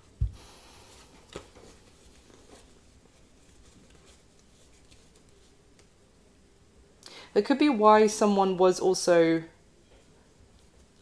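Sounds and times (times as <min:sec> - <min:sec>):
papery card rustle: 0:01.3 - 0:05.6.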